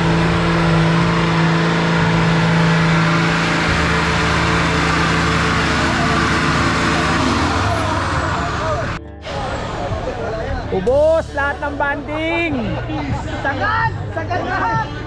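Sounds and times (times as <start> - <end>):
off-road vehicle engine revving: 0.0 - 10.3.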